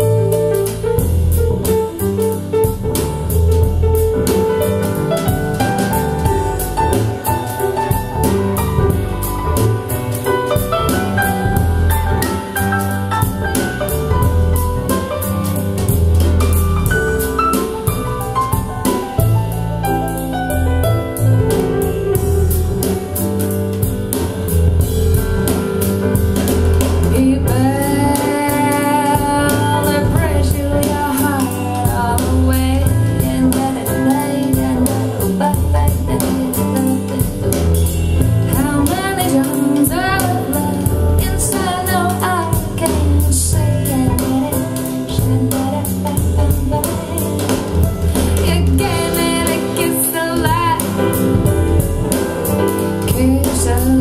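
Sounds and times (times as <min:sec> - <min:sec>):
bass line: 0:00.0 - 0:54.0
drums and guitar: 0:00.0 - 0:54.0
woman singing: 0:27.1 - 0:54.0.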